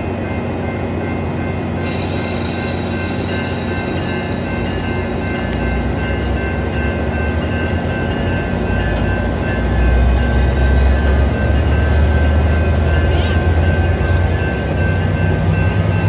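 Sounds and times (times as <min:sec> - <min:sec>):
crossing bells ringing: 0:00.0 - 0:16.0
train rolling past: 0:00.0 - 0:16.0.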